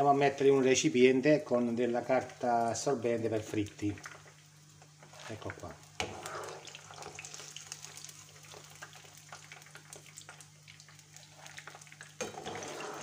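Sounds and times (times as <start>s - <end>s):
food frying in oil: 0.0s - 13.0s.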